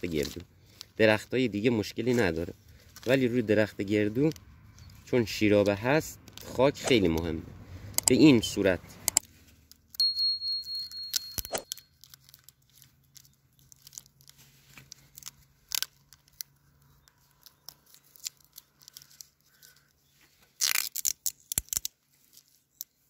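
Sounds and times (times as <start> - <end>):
plastic film crinkling: 11.6 - 23.0.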